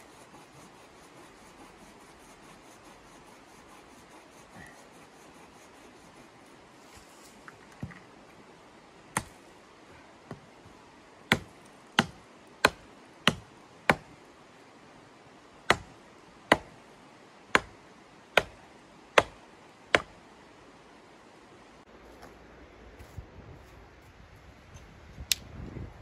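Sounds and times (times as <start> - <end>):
hatchet chopping wood: 9.1 - 9.4, 11.3 - 14.1, 15.7 - 16.7, 17.5 - 17.8, 18.4 - 18.6, 19.2 - 19.4, 20.0 - 20.2.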